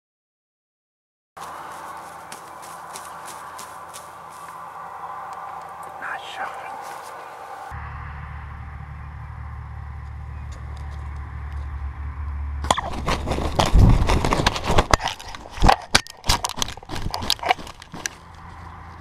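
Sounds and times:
bird flopping in dry grass: 0:01.4 - 0:04.6, 0:12.7 - 0:18.7
turkey wing flaps: 0:12.8 - 0:18.1.

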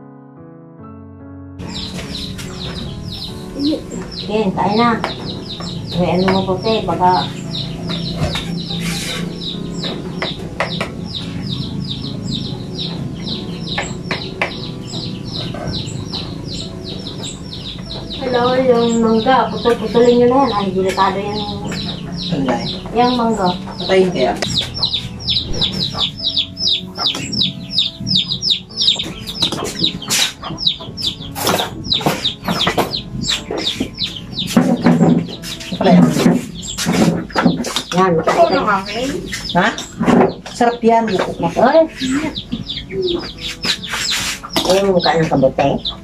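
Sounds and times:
chicks peeping: 0:01.6 - 0:46.0.

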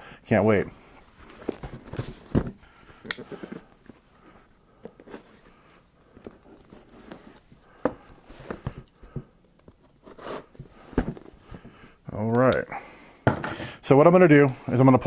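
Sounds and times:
cardboard scraping and rubbing: 0:09.9 - 0:11.4.

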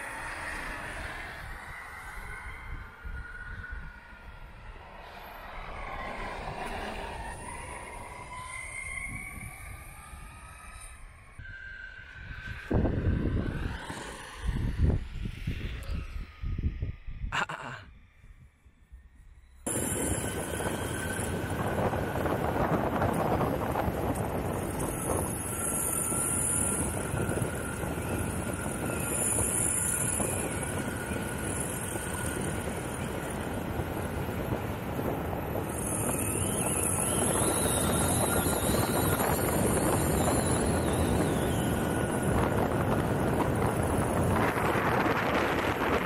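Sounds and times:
skateboard wheels rolling on asphalt: 0:00.0 - 0:15.6, 0:19.6 - 0:46.0
wind on microphone: 0:11.4 - 0:18.6, 0:19.7 - 0:46.0.

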